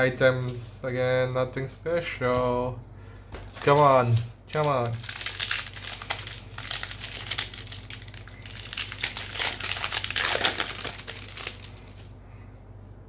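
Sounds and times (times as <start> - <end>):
wrapper crinkling: 3.5 - 12.1.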